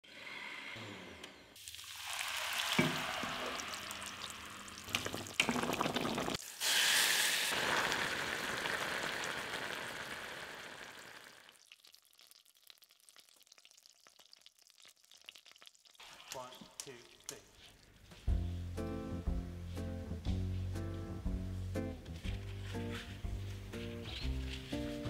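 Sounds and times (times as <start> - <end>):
food sizzling in a pot: 1.6 - 16.4.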